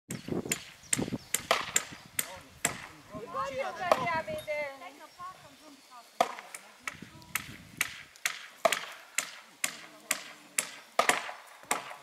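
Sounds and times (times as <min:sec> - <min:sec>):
hand tool striking wood: 0:00.4 - 0:02.9, 0:06.2 - 0:12.0.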